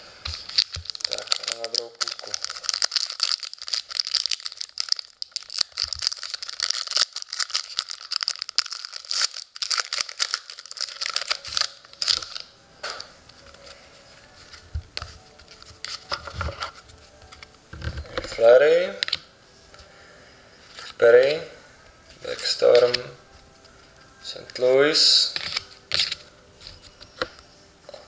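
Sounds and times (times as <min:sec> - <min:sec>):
handling of cards: 0:00.2 - 0:19.9, 0:22.2 - 0:27.4
plastic wrapper tearing and crinkling: 0:00.3 - 0:12.5, 0:22.3 - 0:23.1, 0:25.4 - 0:26.9.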